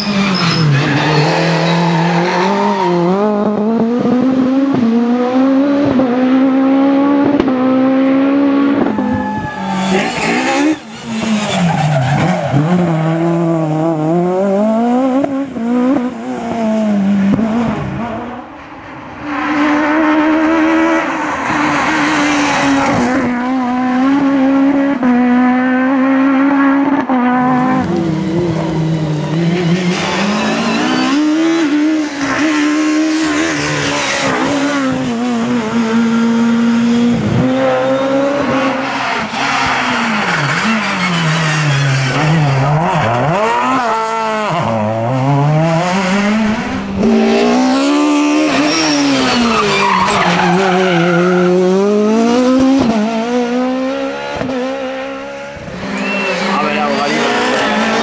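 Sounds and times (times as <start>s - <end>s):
rally car engines revving: 0.0s - 58.0s.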